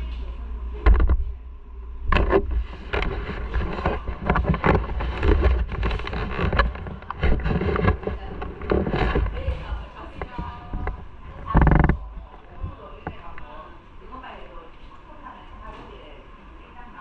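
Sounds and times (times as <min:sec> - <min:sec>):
camera handling knocks and rubbing: 0:00.9 - 0:01.2, 0:02.1 - 0:12.0.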